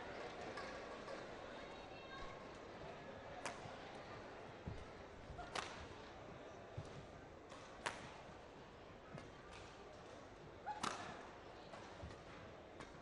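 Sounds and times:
crowd murmur: 0.0 - 7.0.

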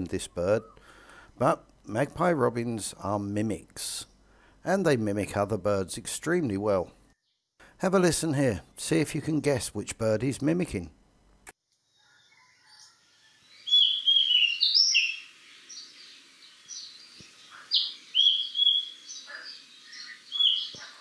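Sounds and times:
bird singing whistled notes: 12.4 - 20.9.

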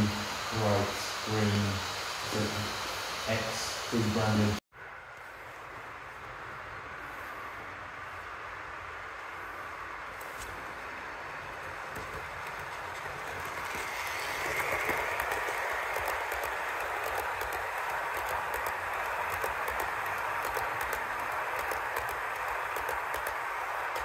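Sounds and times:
model train wheels rumbling: 0.0 - 4.6, 5.2 - 24.0
clicks at rail joints: 11.5 - 24.0.

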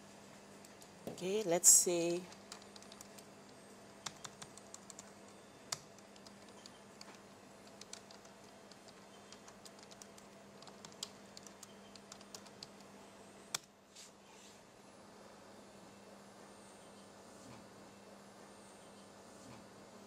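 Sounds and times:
low steady hum: 0.0 - 13.9
typing on a computer keyboard: 2.2 - 3.3, 4.0 - 12.9.

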